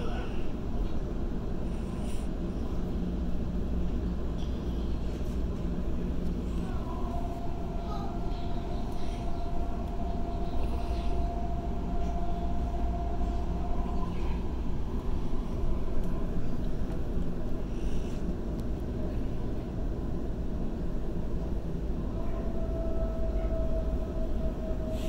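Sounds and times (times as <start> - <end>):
train whine: 0.0 - 25.0
wheels rumbling on rail: 0.0 - 25.0.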